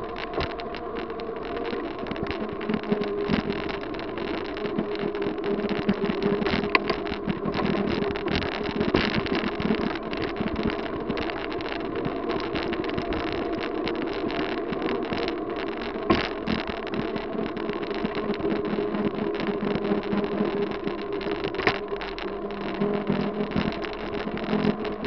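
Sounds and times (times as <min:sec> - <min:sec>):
crackles and thumps: 0:00.0 - 0:25.0
wind buffeting microphone: 0:00.0 - 0:25.0.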